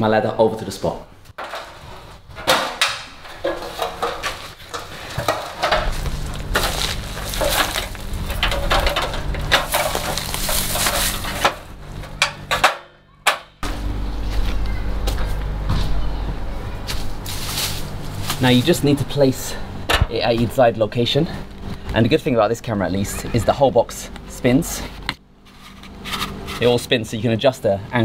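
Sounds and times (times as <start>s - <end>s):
metal stepladder clanking: 1.4s - 13.5s
low rumble: 5.2s - 12.2s.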